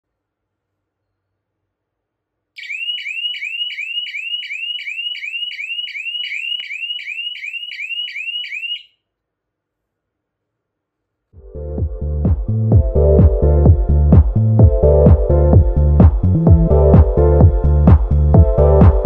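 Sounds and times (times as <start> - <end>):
electronic alarm chirping: 2.6 - 9.0.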